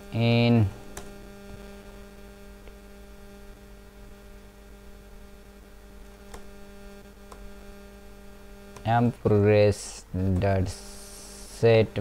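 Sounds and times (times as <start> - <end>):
electrical mains hum: 0.0 - 12.0
faint keyboard clicks: 6.1 - 6.5.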